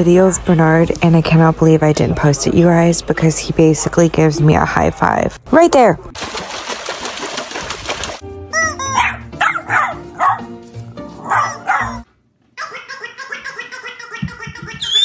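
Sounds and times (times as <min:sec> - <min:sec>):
background music: 0:08.0 - 0:12.1
dog yipping: 0:08.6 - 0:10.6, 0:11.2 - 0:15.0.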